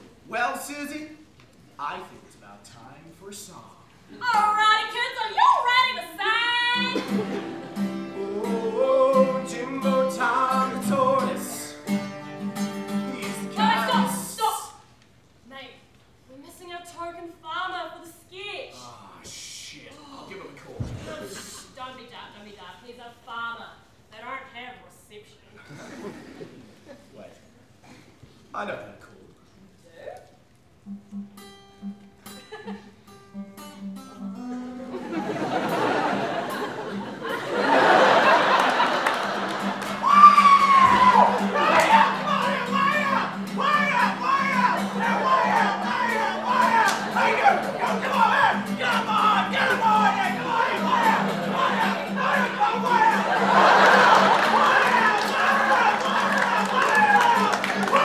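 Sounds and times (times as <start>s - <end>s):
acoustic guitar strumming: 6.7s - 14.4s, 30.8s - 35.1s, 39.2s - 58.0s
audience laughing: 6.8s - 9.1s, 25.6s - 27.2s, 34.5s - 40.2s, 40.8s - 58.0s
person singing: 8.1s - 11.7s.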